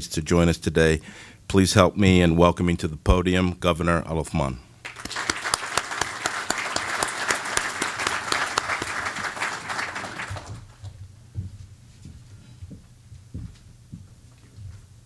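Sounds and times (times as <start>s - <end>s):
audience applauding: 4.8s - 10.9s.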